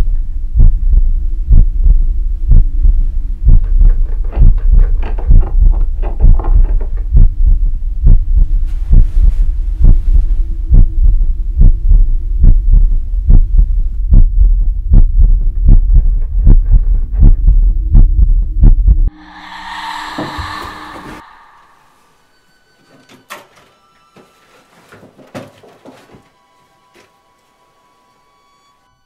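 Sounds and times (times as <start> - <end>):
heartbeat thuds: 0.5 - 19.0
low droning hum: 19.1 - 22.5.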